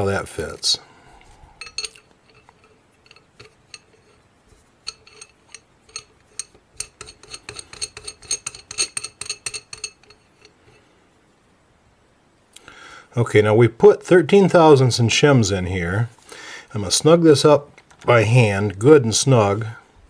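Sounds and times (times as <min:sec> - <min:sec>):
metallic clicks of threading parts: 0:01.2 - 0:04.2, 0:04.8 - 0:10.8.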